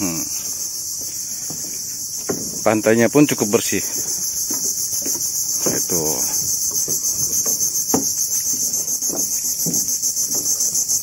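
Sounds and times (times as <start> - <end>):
insect chorus droning: 0.0 - 11.0
faint knocks: 1.4 - 2.8.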